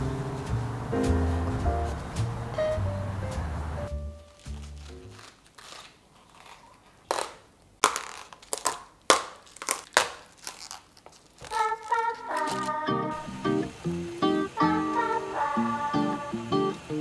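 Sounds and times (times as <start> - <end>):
cabbage leaves snapping: 4.2 - 12.8.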